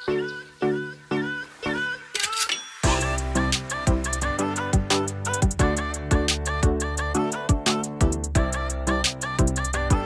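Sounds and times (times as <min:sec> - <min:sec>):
hi-hats: 0:02.8 - 0:10.0.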